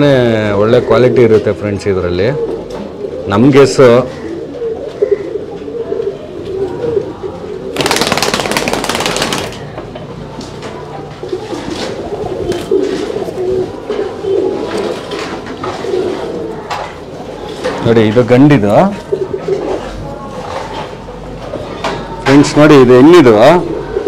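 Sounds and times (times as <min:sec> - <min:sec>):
pigeons cooing: 0:00.0 - 0:22.2, 0:23.0 - 0:24.0
loud rustling: 0:07.8 - 0:09.7.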